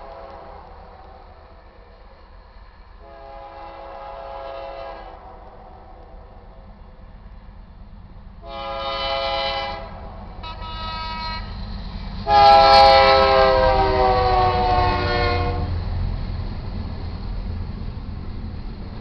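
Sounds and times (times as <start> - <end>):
train rumbling past: 0.0 - 19.0
locomotive air horn blasts: 3.0 - 5.5, 8.4 - 11.6, 12.2 - 15.8.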